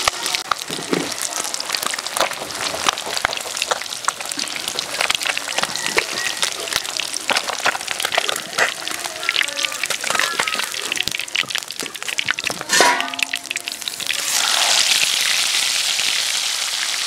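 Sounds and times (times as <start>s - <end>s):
fish sizzling in hot oil: 0.0s - 17.0s
metal spatula scraping pan: 12.6s - 13.6s.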